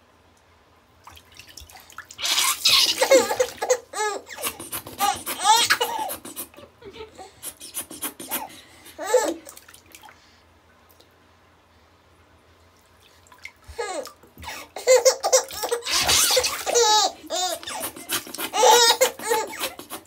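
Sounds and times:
baby laughing and squealing: 2.2 - 9.4, 13.8 - 20.0.

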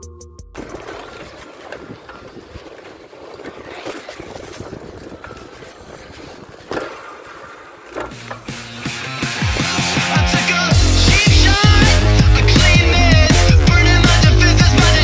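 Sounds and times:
bike rattles and clicks: 0.6 - 10.1
bicycle tyre noise: 0.6 - 10.2.

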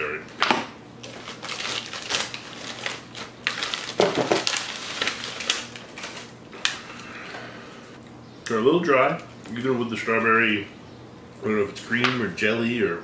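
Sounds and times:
plastic wrapper crinkling and tearing: 1.0 - 6.9
crackly crunches: 1.0 - 7.1.

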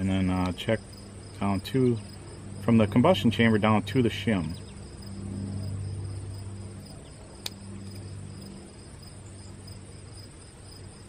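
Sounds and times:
insects chirping: 0.0 - 11.0
low steady hum: 0.0 - 11.0
sharp click: 7.4 - 8.1.

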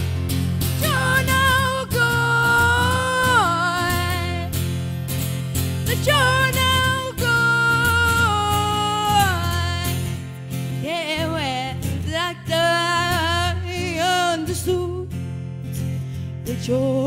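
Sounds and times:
strummed acoustic guitar: 0.0 - 17.0
woman singing: 0.8 - 4.7, 5.8 - 15.2, 16.4 - 17.0.

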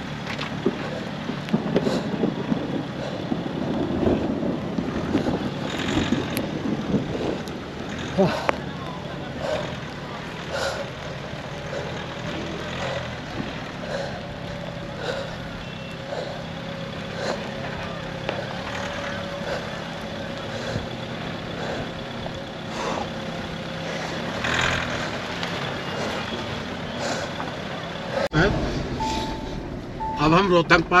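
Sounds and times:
vehicle engine running at low speed: 0.0 - 31.0
short beeps: 29.0 - 30.5.

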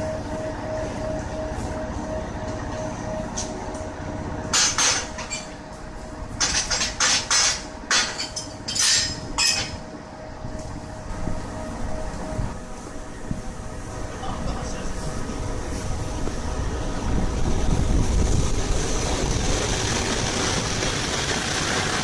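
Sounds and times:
faint pulsing tone: 0.0 - 4.4
electric locomotive rumbling: 0.0 - 22.0
sharp metallic clanks: 4.5 - 5.6, 6.4 - 9.8.

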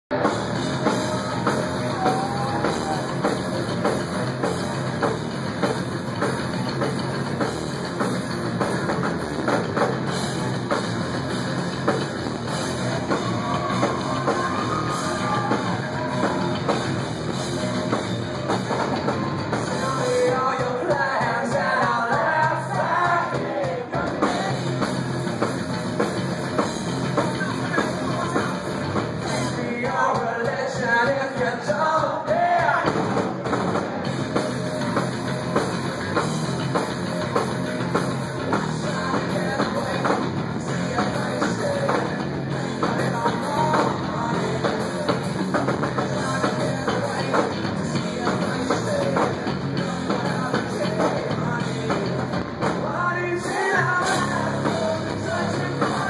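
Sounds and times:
drum kit: 0.0 - 56.0
person singing: 0.1 - 4.0, 18.8 - 25.4, 38.4 - 56.0
guitars: 0.1 - 56.0.

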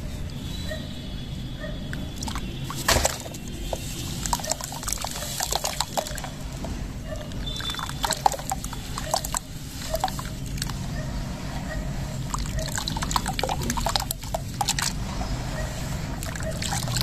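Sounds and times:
water splashing and sloshing: 1.9 - 17.0
block splashing into water: 2.2 - 6.6, 7.4 - 10.7, 12.3 - 15.0.

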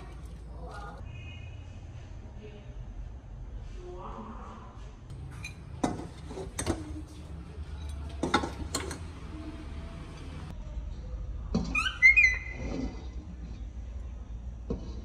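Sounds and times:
monkey high-pitched call: 11.7 - 12.7.

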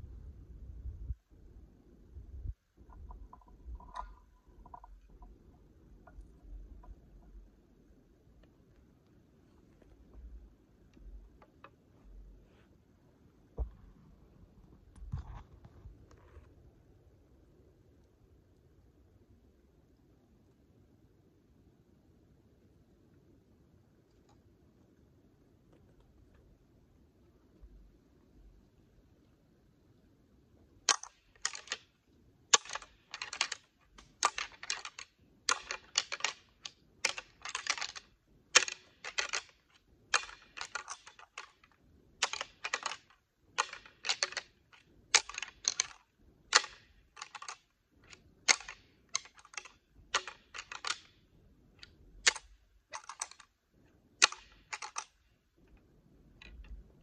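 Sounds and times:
deer antlers clacking: 2.8 - 8.5, 30.9 - 51.1.

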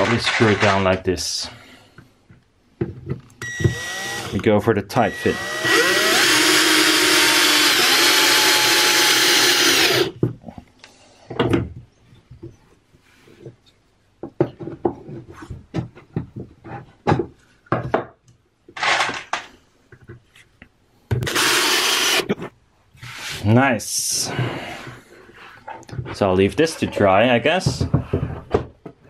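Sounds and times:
cordless drill whining: 3.4 - 4.4, 5.0 - 10.2, 21.2 - 22.3.

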